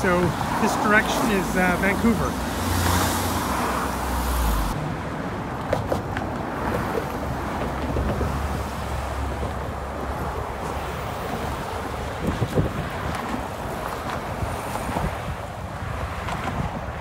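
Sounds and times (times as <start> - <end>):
road traffic driving past: 0.0 - 17.0
wind buffeting microphone: 5.6 - 17.0.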